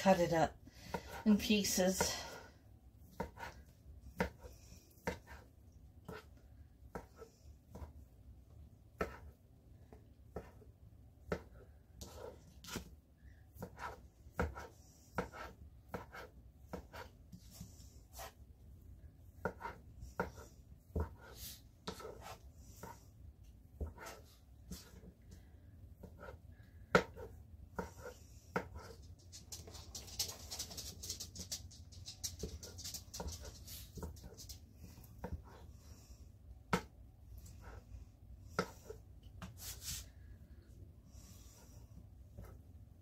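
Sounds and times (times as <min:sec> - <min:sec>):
knife cutting on cutting mat: 0:19.4 - 0:23.0.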